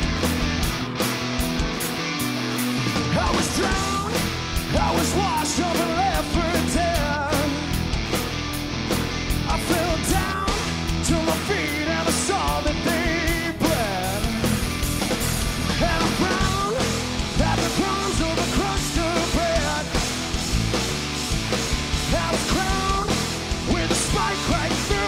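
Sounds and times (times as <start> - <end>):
driving drums: 0.0 - 25.0
live rock band: 0.0 - 25.0
man singing: 3.0 - 7.8, 9.4 - 14.6, 15.7 - 20.0, 22.0 - 25.0.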